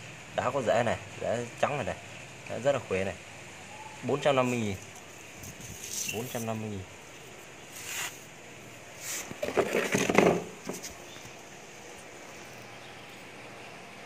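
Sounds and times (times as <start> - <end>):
low steady hiss: 0.0 - 14.0
hands rustling plant and moss: 4.4 - 8.3.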